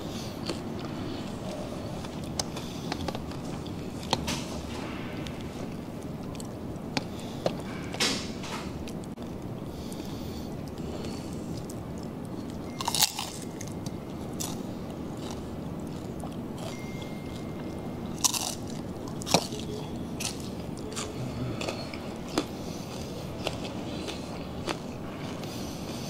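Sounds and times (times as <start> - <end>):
crunching crispy pork skin: 12.8 - 14.6.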